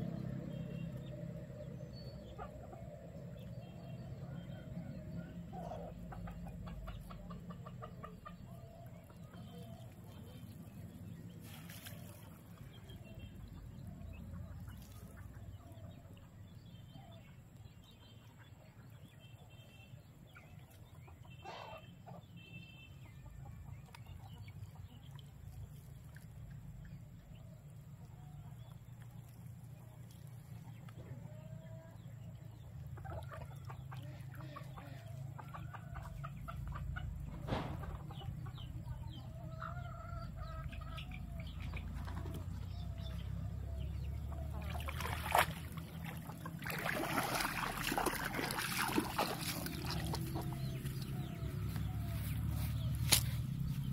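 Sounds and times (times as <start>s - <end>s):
low steady rumble: 0.0s - 19.0s, 23.8s - 53.9s
chickens clucking: 2.2s - 3.5s, 4.2s - 12.8s, 20.8s - 22.3s, 29.8s - 53.9s
short bird calls: 21.3s - 22.8s.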